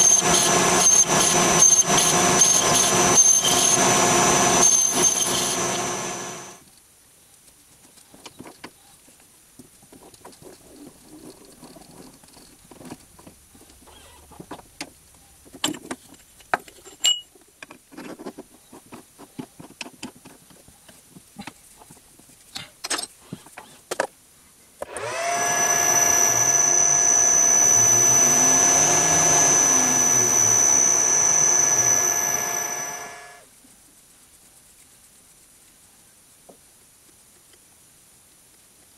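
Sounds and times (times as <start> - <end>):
metal lathe with gear whine: 0.0 - 6.6, 24.9 - 33.4.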